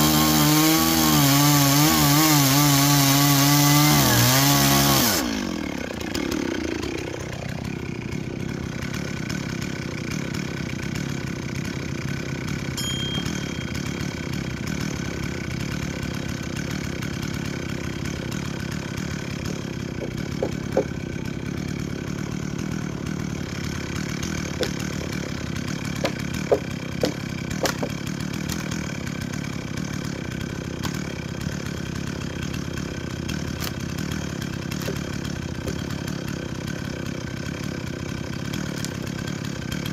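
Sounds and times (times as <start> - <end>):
chainsaw idling: 0.0 - 39.9
sharp knocks: 19.5 - 21.0, 24.5 - 25.4, 26.0 - 28.0.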